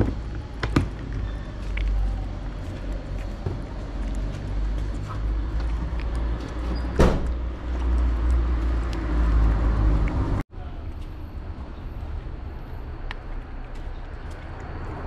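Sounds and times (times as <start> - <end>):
cat chewing and lapping food: 1.6 - 6.7
loud thump: 7.0 - 7.3.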